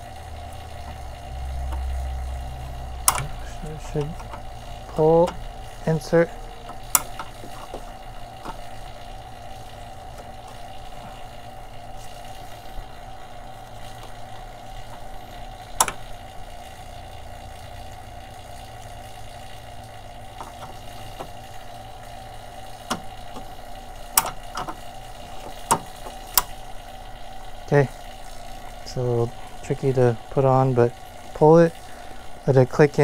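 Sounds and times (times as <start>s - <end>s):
vacuum pump humming: 0.0s - 33.0s
coupler clicks: 3.0s - 3.4s, 6.6s - 7.8s, 24.1s - 24.8s.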